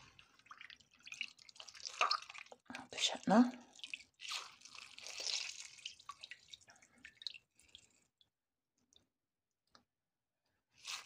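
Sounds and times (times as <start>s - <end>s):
water dripping and squelching: 0.0s - 8.3s, 10.8s - 11.0s.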